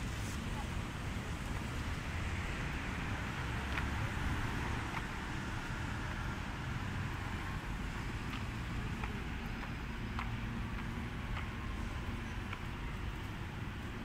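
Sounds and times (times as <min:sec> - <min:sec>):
distant road traffic hum: 0:00.0 - 0:14.0.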